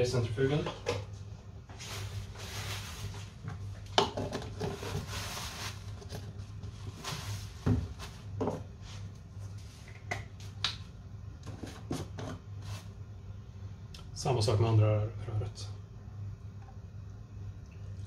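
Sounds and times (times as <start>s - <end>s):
low hum of lab equipment: 0.0s - 18.0s
paper towel rustling: 1.7s - 3.4s, 4.6s - 9.8s.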